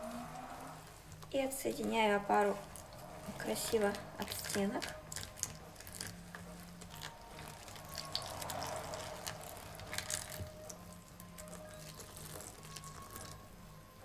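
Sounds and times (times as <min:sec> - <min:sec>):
water trickling into a bowl: 0:02.5 - 0:13.4.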